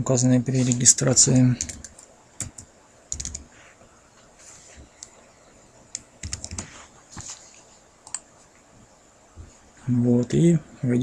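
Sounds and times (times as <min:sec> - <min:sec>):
keyboard typing: 0:00.7 - 0:03.5, 0:05.9 - 0:06.8, 0:08.0 - 0:08.3.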